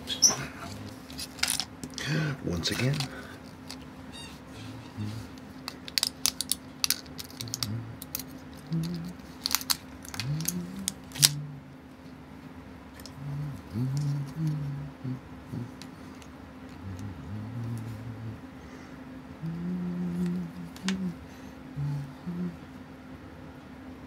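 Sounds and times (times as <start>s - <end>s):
soft low hums: 0.0s - 24.0s
blister pack crinkling: 0.7s - 2.0s, 5.3s - 11.4s.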